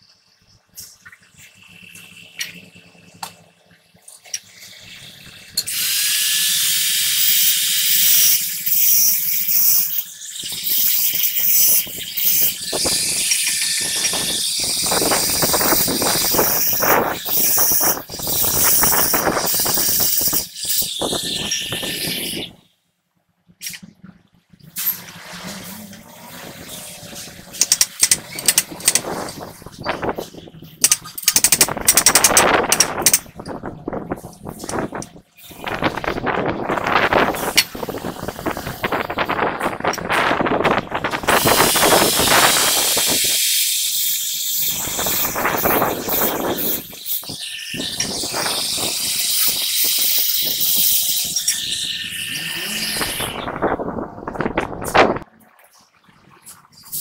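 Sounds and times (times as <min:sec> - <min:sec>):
small metal sounds: 0:04.1 - 0:22.4, 0:24.7 - 0:36.1
angle grinder grinding metal: 0:05.6 - 0:22.5, 0:25.6 - 0:33.4, 0:41.0 - 0:55.2.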